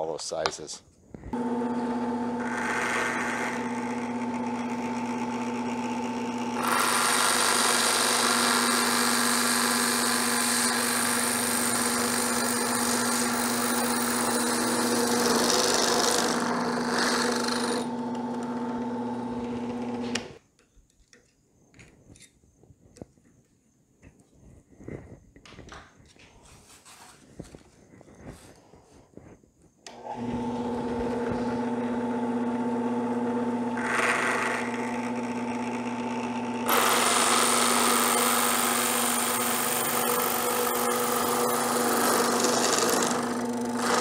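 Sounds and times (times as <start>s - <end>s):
drill press motor humming: 1.4s - 20.4s, 29.9s - 44.0s
hole saw cutting plastic pipe: 2.4s - 5.3s, 6.6s - 18.6s, 33.8s - 44.0s.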